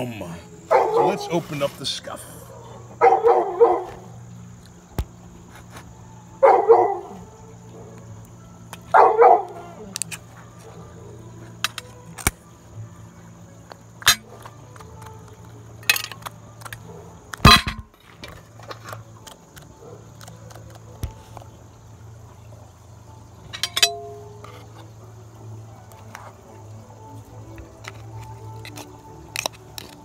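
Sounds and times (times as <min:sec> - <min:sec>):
dog barking: 0:00.7 - 0:01.3, 0:02.5 - 0:04.1, 0:06.4 - 0:08.0, 0:08.9 - 0:09.9
metal tin clicking and clinking: 0:11.6 - 0:12.4, 0:14.0 - 0:15.1, 0:15.8 - 0:18.9, 0:23.4 - 0:24.9, 0:27.8 - 0:30.0
loud snap of tin lid: 0:15.8 - 0:17.9.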